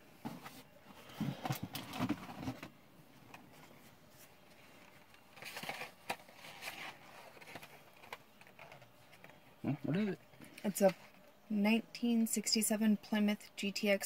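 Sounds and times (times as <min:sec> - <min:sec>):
packaging rustling: 0:04.4 - 0:09.4.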